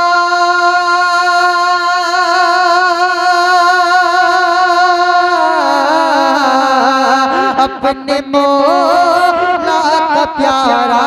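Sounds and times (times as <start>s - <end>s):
man singing a long note: 0.0s - 11.0s.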